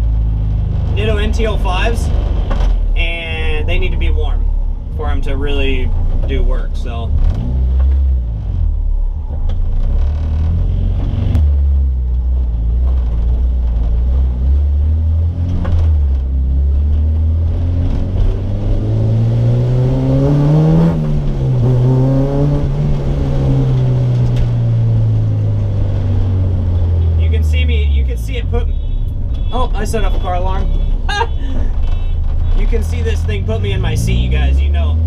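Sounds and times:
race car engine revving: 0:06.5 - 0:28.5, 0:31.4 - 0:35.0.

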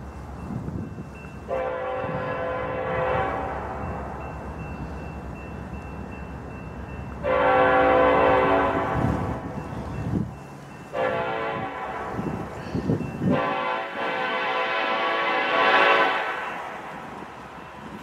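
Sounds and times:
locomotive air horn blasts: 0:01.5 - 0:04.0, 0:07.2 - 0:09.8, 0:10.9 - 0:17.4.

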